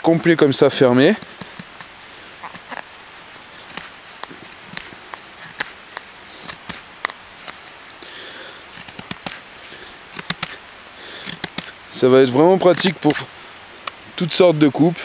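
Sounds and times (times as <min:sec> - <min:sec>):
knife whittling wood: 0:01.0 - 0:07.6, 0:08.7 - 0:11.8, 0:12.5 - 0:13.3.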